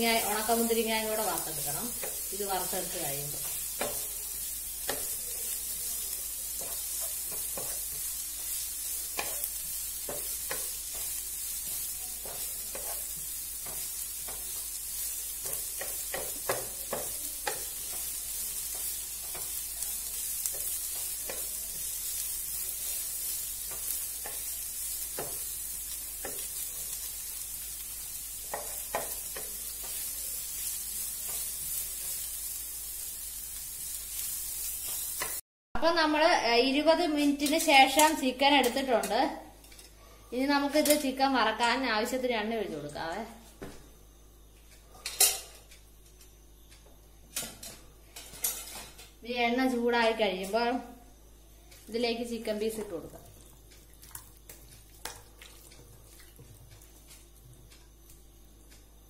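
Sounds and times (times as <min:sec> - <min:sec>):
onions sizzling in oil: 0:00.0 - 0:35.4, 0:36.0 - 0:59.0
spatula scraping and tapping: 0:03.3 - 0:04.2, 0:04.8 - 0:05.2, 0:06.5 - 0:27.0, 0:28.4 - 0:32.3.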